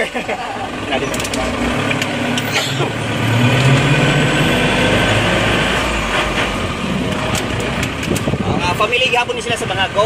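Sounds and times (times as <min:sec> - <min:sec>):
road noise: 0:00.0 - 0:10.0
vehicle engine running: 0:00.0 - 0:10.0
wind noise: 0:07.8 - 0:08.9.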